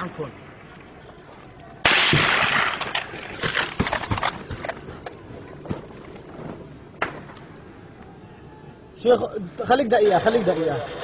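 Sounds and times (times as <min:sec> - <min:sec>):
gunfire: 0:01.8 - 0:04.3.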